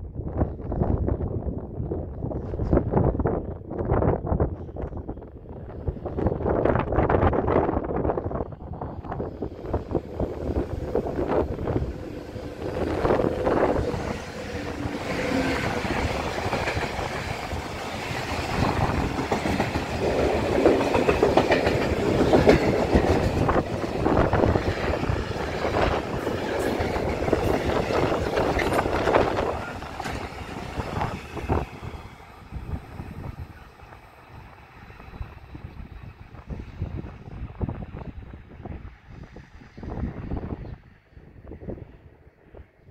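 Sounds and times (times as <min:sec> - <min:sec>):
train wagons clattering over rail joints: 0:10.7 - 0:31.9.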